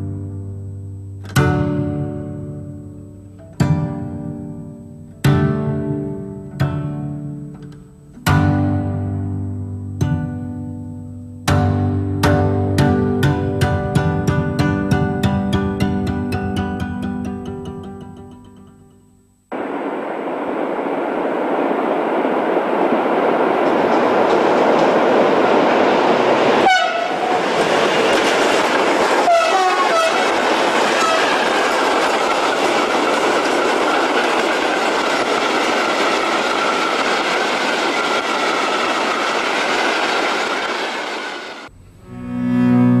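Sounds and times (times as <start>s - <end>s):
train wheels rushing on track: 19.5s - 41.7s
short train horn notes: 26.6s - 27.3s, 29.2s - 31.6s.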